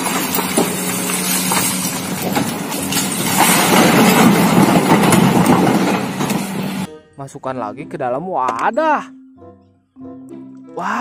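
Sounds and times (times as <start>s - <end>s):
stones clattering in bucket: 0.0s - 6.0s
excavator diesel engine running: 0.0s - 6.9s.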